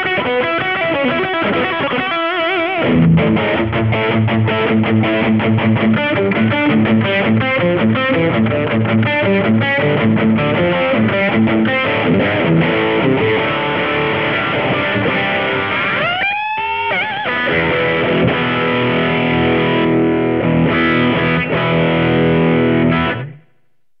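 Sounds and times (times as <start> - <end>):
distorted electric guitar: 0.0 - 23.9.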